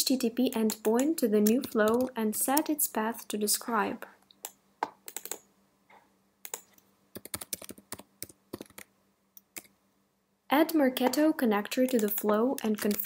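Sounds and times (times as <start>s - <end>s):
computer keyboard typing: 0.5s - 2.7s, 4.4s - 5.4s, 6.4s - 9.7s, 11.8s - 13.0s.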